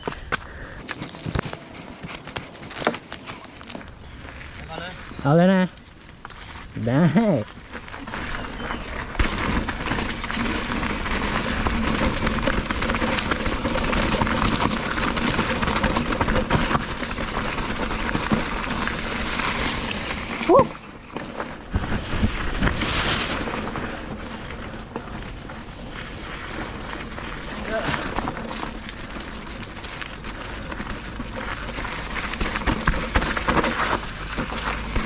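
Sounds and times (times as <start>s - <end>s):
bike tyre and wind rush: 0.0s - 35.0s
bike knocks and rattles: 8.0s - 35.0s.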